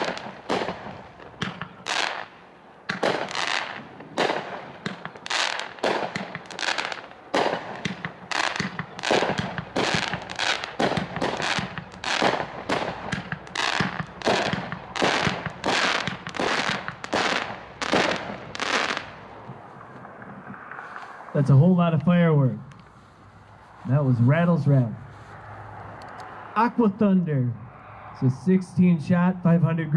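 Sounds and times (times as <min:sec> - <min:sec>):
firework shells bursting: 0:00.0 - 0:21.1.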